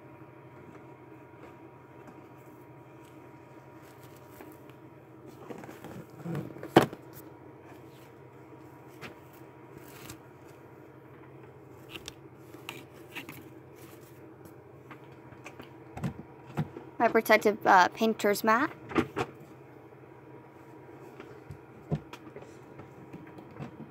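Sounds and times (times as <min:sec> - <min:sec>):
rustling: 0:02.4 - 0:06.6.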